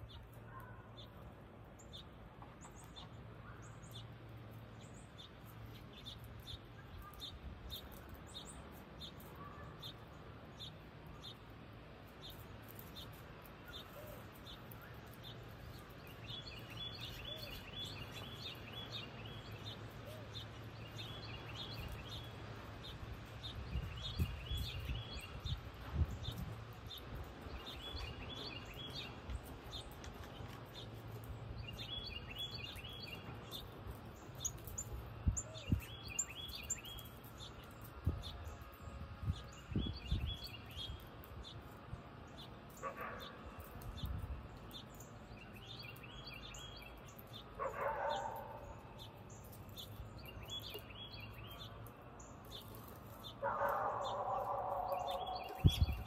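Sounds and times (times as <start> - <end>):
trilled bird song: 0.0 - 56.0
high bird chirps: 44.8 - 56.0.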